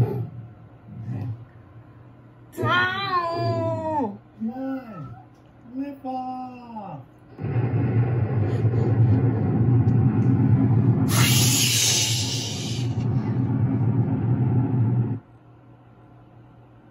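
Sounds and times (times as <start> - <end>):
loud hiss: 7.4 - 13.1
cartoon rocket rumble: 7.4 - 15.2.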